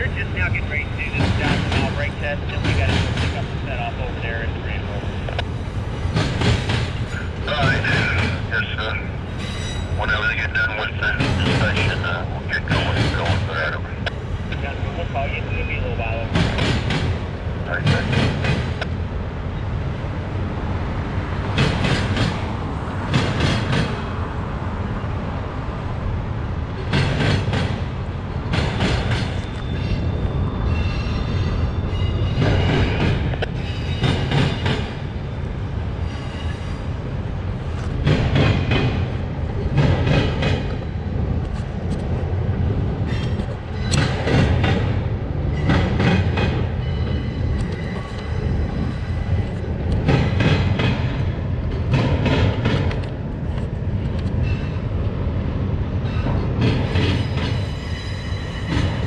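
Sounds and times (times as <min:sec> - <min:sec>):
freight train rumble: 0:00.0 - 0:59.0
train wheels clacking: 0:01.0 - 0:03.7, 0:05.3 - 0:08.6, 0:11.0 - 0:14.8, 0:16.2 - 0:19.0, 0:21.6 - 0:24.1, 0:26.8 - 0:27.8, 0:28.5 - 0:30.1, 0:32.2 - 0:35.0, 0:37.8 - 0:42.1, 0:43.0 - 0:48.4, 0:49.4 - 0:54.8, 0:56.1 - 0:59.0
faint high wheel squeal: 0:09.3 - 0:10.0.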